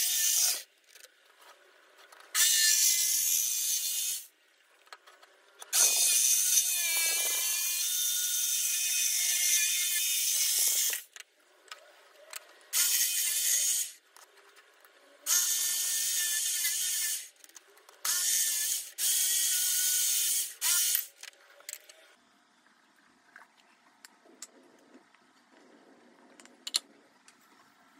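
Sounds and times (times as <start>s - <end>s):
electric jigsaw cutting wood: 5.8s - 11.0s.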